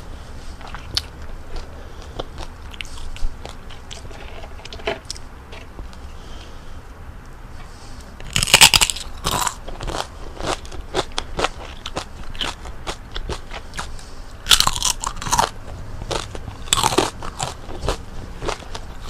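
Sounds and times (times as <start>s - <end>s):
chewing crunches: 0.6s - 6.0s, 8.2s - 19.0s
crackling bites of crispy food: 8.2s - 13.9s, 14.5s - 19.0s.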